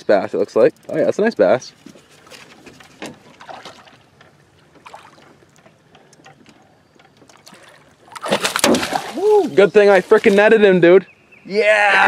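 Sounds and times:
water lapping against boat: 1.7s - 10.4s.

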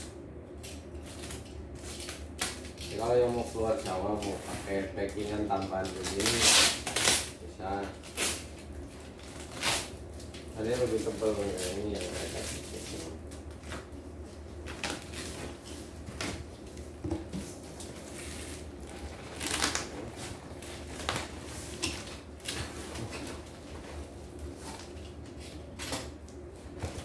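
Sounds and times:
steady low hum: 0.0s - 27.0s
cardboard rustling and scraping: 14.7s - 26.0s.

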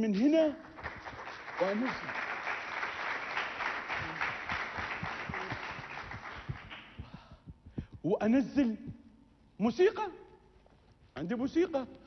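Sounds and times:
audience applauding: 0.6s - 7.1s.

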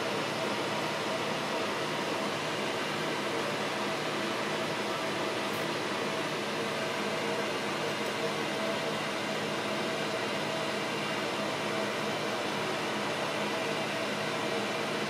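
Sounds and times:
fan whirring and hissing: 0.0s - 15.0s.

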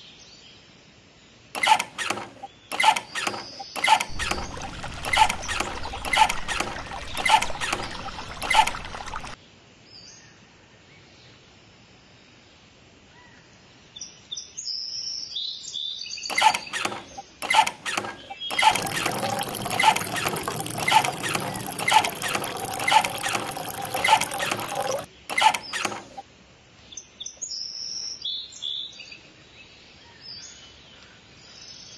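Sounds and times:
water rushing from hand pump: 1.6s - 9.4s, 16.3s - 26.2s.

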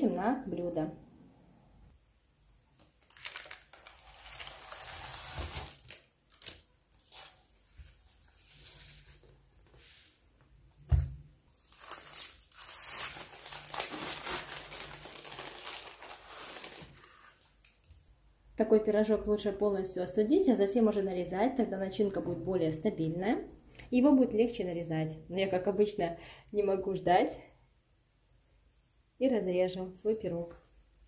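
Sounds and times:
parchment crinkling: 2.8s - 10.2s, 11.5s - 18.0s.

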